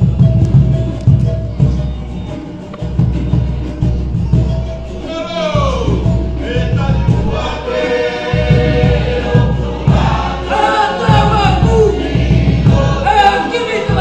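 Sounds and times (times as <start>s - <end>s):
rhythmic drumming: 0.0s - 14.0s
many voices singing together: 5.3s - 14.0s.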